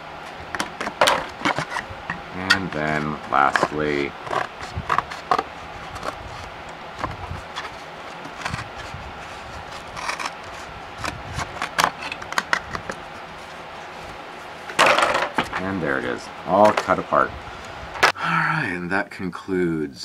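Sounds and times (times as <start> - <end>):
scissors cutting cardboard: 0.5 - 13.0.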